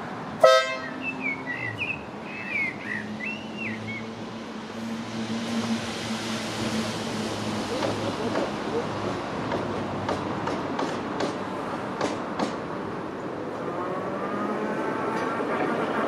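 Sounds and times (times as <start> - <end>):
bird chirping: 0.8 - 4.1.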